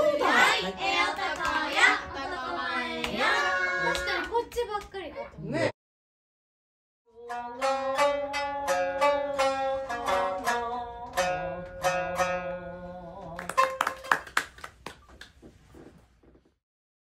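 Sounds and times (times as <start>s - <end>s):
plucked string music: 7.2s - 14.1s.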